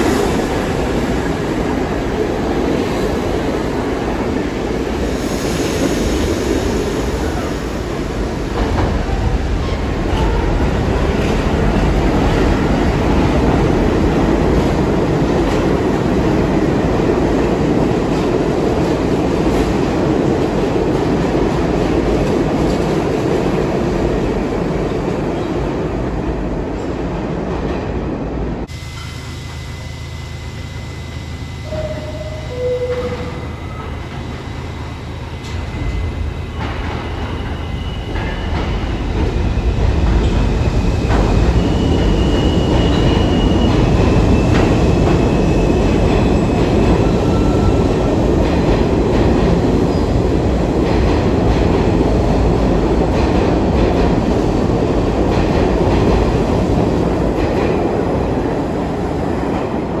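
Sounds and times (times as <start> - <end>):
subway train wheels rumbling: 0.0 - 60.0
faint high squeals: 28.7 - 38.8.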